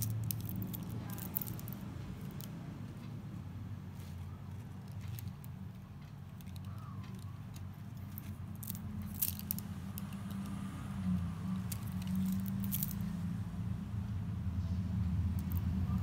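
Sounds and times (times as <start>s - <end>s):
stone beads clicking: 0.0s - 2.6s, 4.0s - 13.2s, 15.3s - 16.0s.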